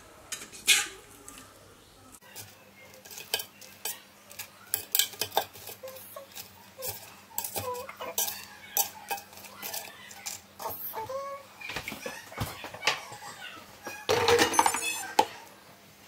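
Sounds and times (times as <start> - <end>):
metal fork clinking on basket: 2.4 - 10.8, 12.8 - 15.4.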